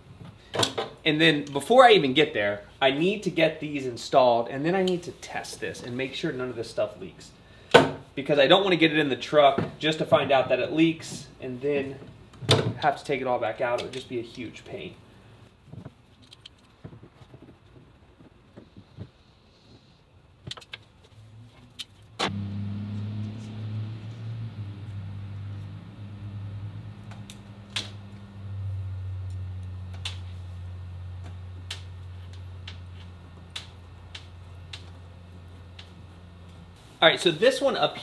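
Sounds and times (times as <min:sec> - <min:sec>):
steady low hum: 0:22.2 - 0:38.0.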